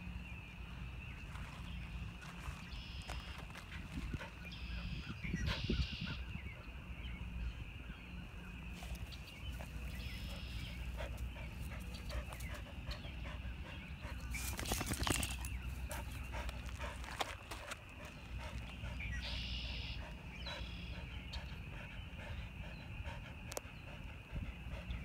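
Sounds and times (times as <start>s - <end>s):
dog panting: 9.0s - 25.0s.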